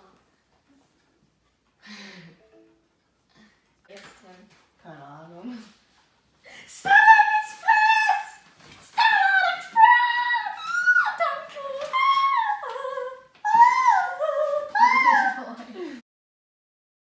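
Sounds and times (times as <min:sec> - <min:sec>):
girl singing high: 0:06.6 - 0:15.6.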